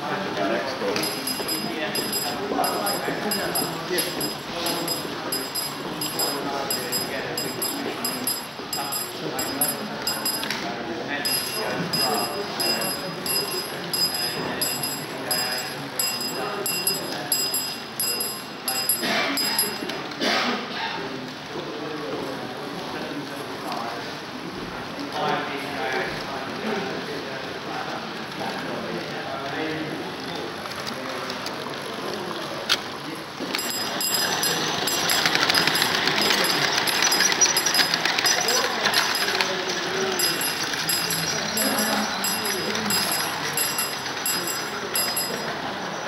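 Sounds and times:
murmur of voices: 0.0 - 46.0
crossing signal bell ringing: 1.0 - 10.5, 11.3 - 19.9, 33.5 - 45.7
model train running on track: 26.3 - 46.0.

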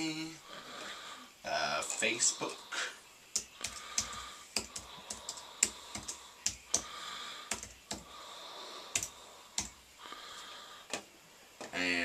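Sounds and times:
keyboard typing clicks: 3.3 - 6.9, 7.5 - 8.1, 8.9 - 9.8.

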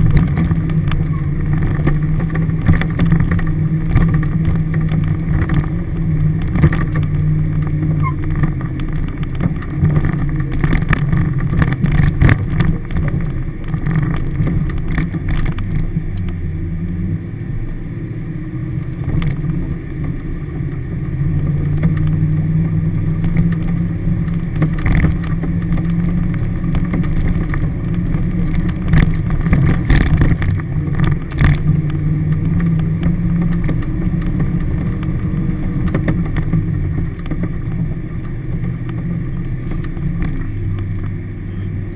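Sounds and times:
vehicle knocks and rattles: 0.0 - 16.4, 20.8 - 41.2
engine running from inside cabin: 0.0 - 41.9.

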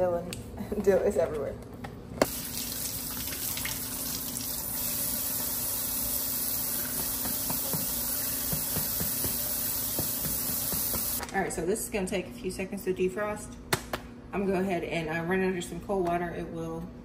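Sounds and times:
faucet spraying water: 2.3 - 11.2
water splashing in a sink: 2.3 - 11.2.

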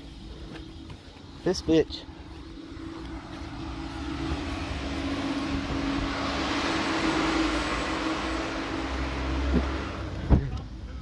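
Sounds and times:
steady low hum: 0.0 - 11.0
vehicle passing: 1.4 - 10.4.

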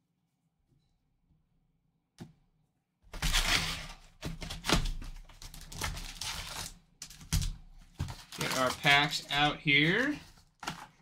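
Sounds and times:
cardboard and wrappers tearing: 3.2 - 7.2, 8.0 - 11.0.

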